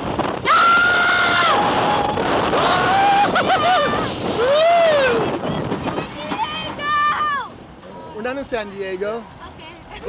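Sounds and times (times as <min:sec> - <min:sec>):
roller coaster ride noise: 0:00.0 - 0:10.0
riders screaming and whooping: 0:00.4 - 0:07.5.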